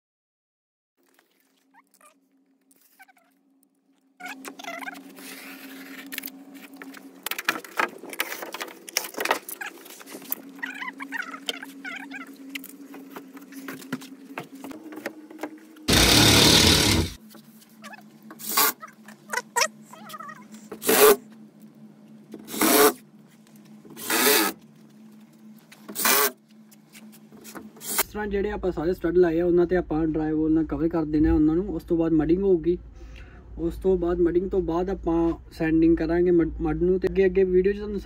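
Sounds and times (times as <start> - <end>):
faint steady hum: 1.0 - 38.0
cordless drill driving screws: 15.9 - 17.2.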